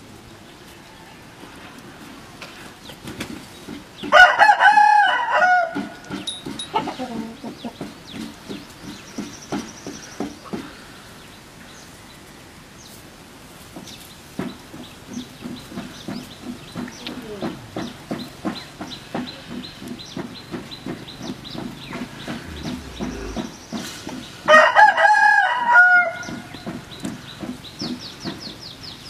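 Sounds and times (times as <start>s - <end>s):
animal short rapid low calls: 22.0s - 23.6s
animal loud pitched call: 22.3s - 23.6s.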